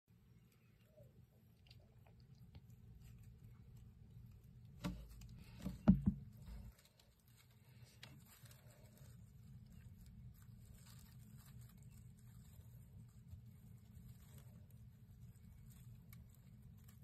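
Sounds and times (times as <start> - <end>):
mice scratching and pattering: 0.4 - 17.0
bumps: 4.8 - 6.7.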